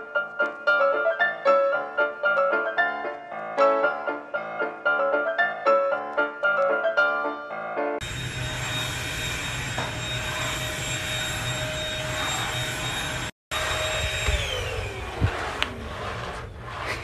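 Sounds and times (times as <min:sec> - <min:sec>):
vacuum cleaner motor whine: 0:08.0 - 0:16.8.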